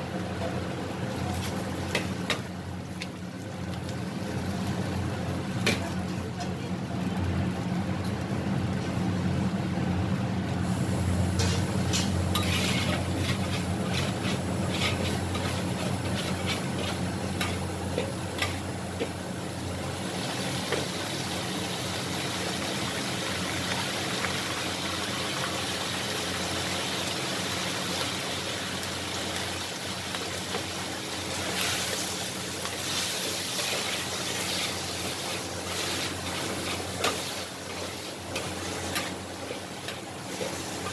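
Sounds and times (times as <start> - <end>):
food sizzling: 0.0 - 40.9
metal spatula scraping a wok: 11.4 - 17.6.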